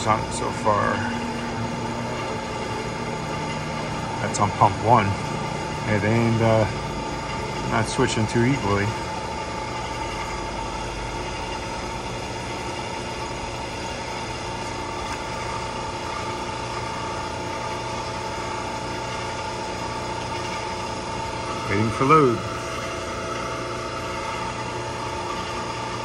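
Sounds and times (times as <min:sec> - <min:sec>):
high whine: 0:00.0 - 0:19.2
mechanical hum: 0:00.0 - 0:26.0.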